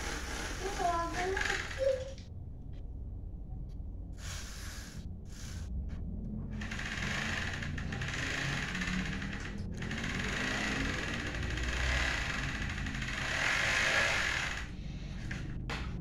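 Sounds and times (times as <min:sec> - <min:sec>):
bicycle chain and freewheel whirring: 0:00.0 - 0:02.2, 0:04.2 - 0:05.7, 0:06.5 - 0:15.6.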